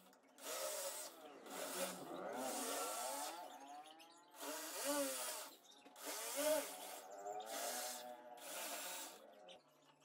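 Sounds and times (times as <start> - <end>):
cordless drill motor: 0.0 - 3.5, 4.4 - 9.6.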